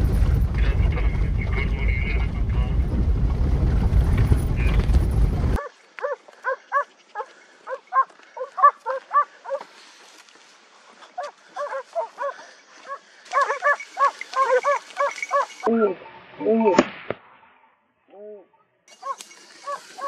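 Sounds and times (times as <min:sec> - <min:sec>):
dog baying in yelping barks: 0:05.6 - 0:09.6, 0:11.2 - 0:15.7, 0:19.0 - 0:20.0.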